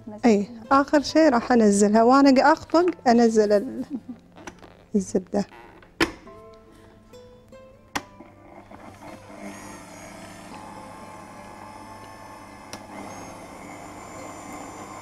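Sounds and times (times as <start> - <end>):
stand mixer beating batter: 8.6 - 15.0.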